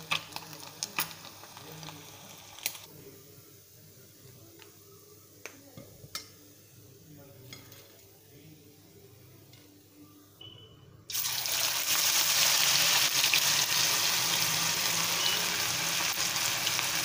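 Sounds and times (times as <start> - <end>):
hot oil sizzling: 0.0 - 2.9, 11.1 - 17.0.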